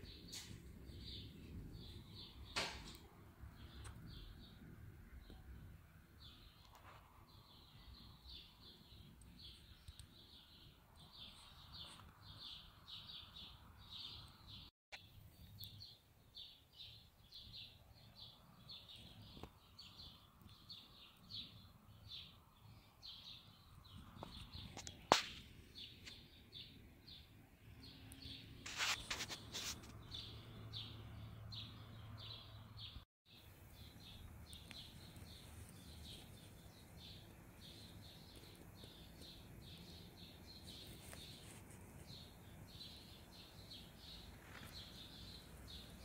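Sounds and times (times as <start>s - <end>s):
bird chirping: 0.0s - 46.0s
sharp click: 2.5s - 3.1s.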